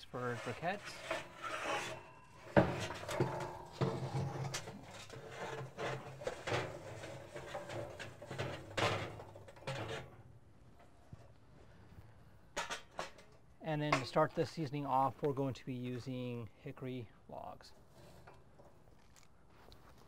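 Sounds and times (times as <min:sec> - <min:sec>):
metal chimney knocking and scraping: 0:00.0 - 0:10.9
charcoal clattering onto metal grate: 0:01.5 - 0:10.1.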